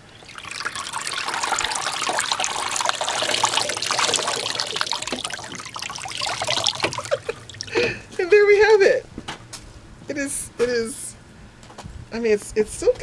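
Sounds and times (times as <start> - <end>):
water pouring and splashing into tub: 0.0 - 8.1.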